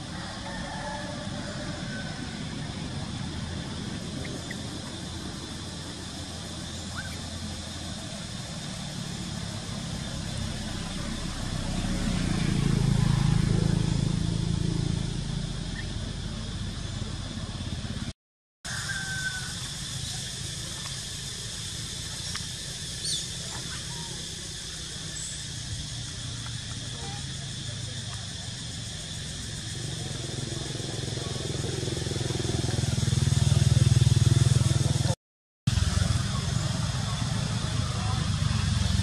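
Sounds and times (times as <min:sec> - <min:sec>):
vehicle engine passing by: 0:00.0 - 0:18.1, 0:19.7 - 0:39.0.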